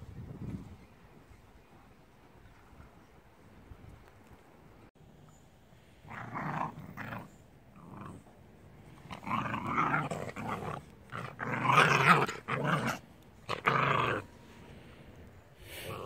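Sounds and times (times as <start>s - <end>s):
dogs growling: 6.1s - 8.3s, 8.9s - 14.4s.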